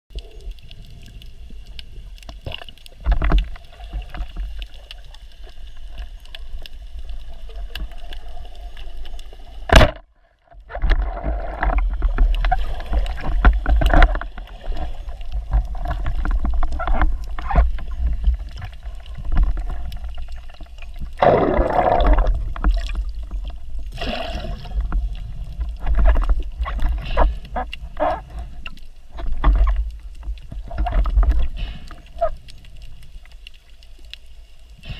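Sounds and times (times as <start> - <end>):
underwater knocks and clicks: 0.1 - 33.6
underwater rumble: 0.1 - 34.9.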